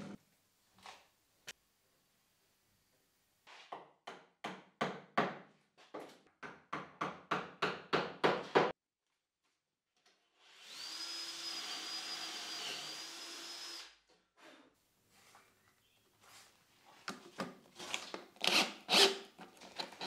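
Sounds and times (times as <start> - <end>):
power drill boring into plywood: 10.5 - 13.9, 18.4 - 20.0.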